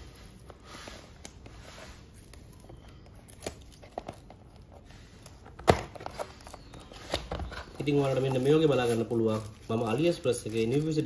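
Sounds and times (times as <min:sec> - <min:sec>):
cardboard seal snapping: 0:02.2 - 0:09.5.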